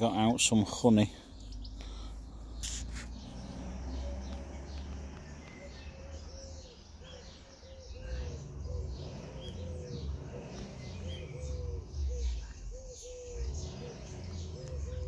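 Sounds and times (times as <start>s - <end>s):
small birds chirping: 0.0s - 15.0s
low rumble: 1.2s - 15.0s
pigeon cooing: 3.2s - 15.0s.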